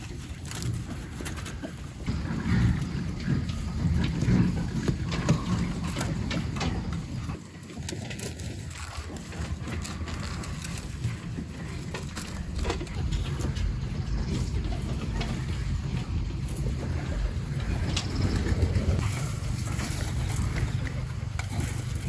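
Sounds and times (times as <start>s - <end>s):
wind rumbling on microphone: 0.0s - 22.0s.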